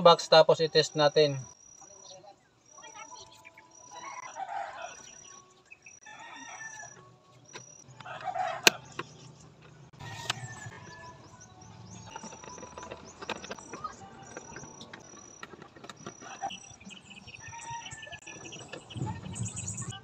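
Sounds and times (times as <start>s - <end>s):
insect chirping: 0.0s - 9.3s, 10.3s - 20.0s
rooster crowing: 3.9s - 5.1s, 6.0s - 7.1s, 7.9s - 9.0s, 10.0s - 11.3s, 17.3s - 18.3s.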